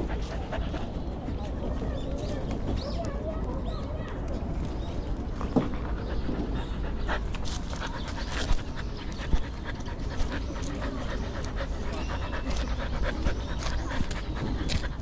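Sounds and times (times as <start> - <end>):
dog panting: 0.0 - 1.9, 5.6 - 15.0.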